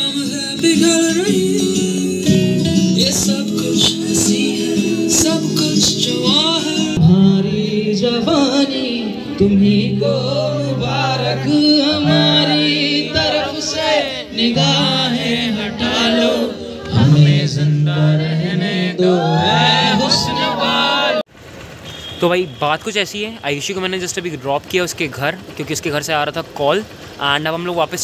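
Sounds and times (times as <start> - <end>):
band playing: 0.0 - 21.2
man singing: 0.0 - 21.2.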